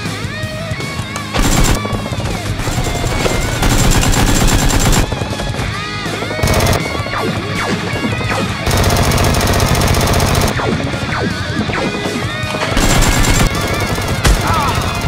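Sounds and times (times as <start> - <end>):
background music: 0.0 - 15.0
machine-gun fire bursts: 1.3 - 5.6, 6.3 - 7.2, 8.3 - 10.7, 12.7 - 15.0.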